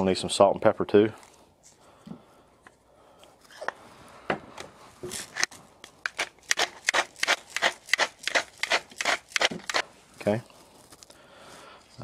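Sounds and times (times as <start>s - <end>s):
pepper mill grinding: 6.0s - 9.9s.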